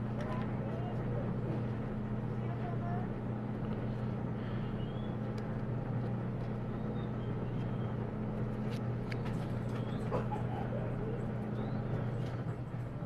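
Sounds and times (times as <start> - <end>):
low hum: 0.0 - 13.0
cards being shuffled: 8.6 - 9.9.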